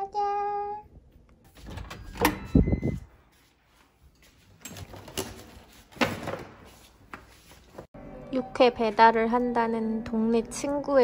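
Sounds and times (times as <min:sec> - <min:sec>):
door clunking open: 0:01.6 - 0:03.0.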